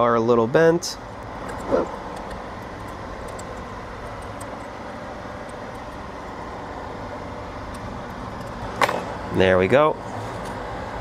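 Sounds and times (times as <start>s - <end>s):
fan-like rushing noise: 0.0s - 11.0s.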